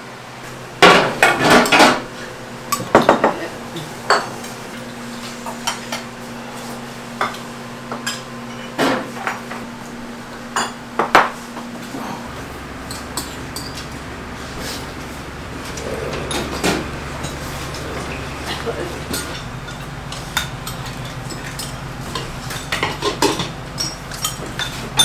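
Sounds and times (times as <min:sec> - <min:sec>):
steady low hum: 0:00.0 - 0:25.0
bowls and spoons clinking: 0:12.8 - 0:14.0, 0:15.7 - 0:25.0.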